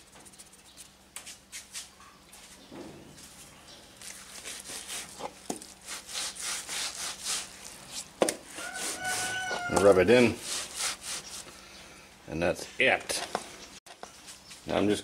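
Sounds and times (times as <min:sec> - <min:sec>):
hands scrubbing salt into meat: 0:04.0 - 0:11.5.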